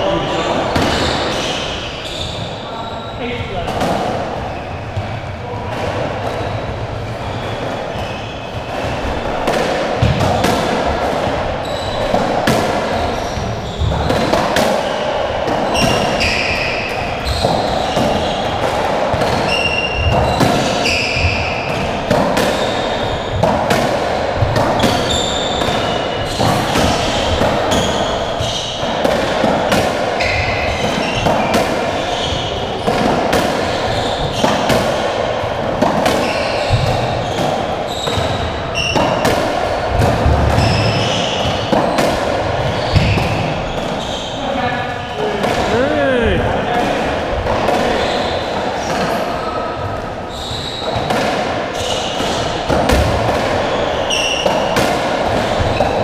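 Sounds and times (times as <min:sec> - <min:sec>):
shoe squeaks on floor: 0:00.0 - 0:03.6, 0:07.1 - 0:08.8, 0:11.6 - 0:12.3, 0:12.9 - 0:14.4, 0:15.7 - 0:18.6, 0:19.2 - 0:23.5, 0:24.8 - 0:29.2, 0:30.2 - 0:33.0, 0:33.7 - 0:34.8, 0:36.1 - 0:39.2, 0:40.5 - 0:45.8, 0:47.9 - 0:51.1, 0:51.7 - 0:52.6, 0:53.6 - 0:54.8
rackets striking ball: 0:07.2 - 0:44.0.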